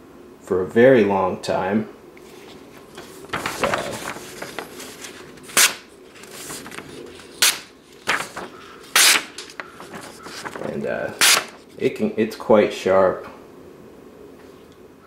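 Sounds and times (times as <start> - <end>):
paper rustling: 2.2 - 11.9
knife slicing paper: 3.0 - 11.7.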